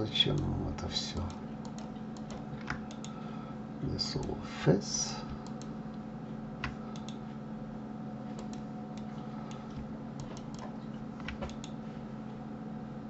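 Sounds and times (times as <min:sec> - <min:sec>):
steady low hum: 0:00.0 - 0:13.0
mouse and keyboard clicks: 0:08.4 - 0:11.8.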